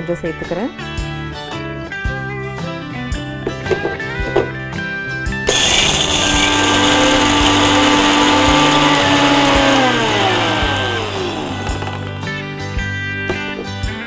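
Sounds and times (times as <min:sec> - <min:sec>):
electric mixer grinder motor whine: 0:05.5 - 0:12.4.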